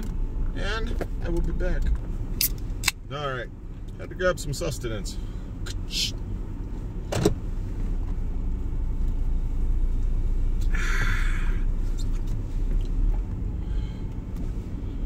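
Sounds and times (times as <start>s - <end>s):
pickup engine rumble: 0.0s - 15.0s
road noise: 0.0s - 15.0s.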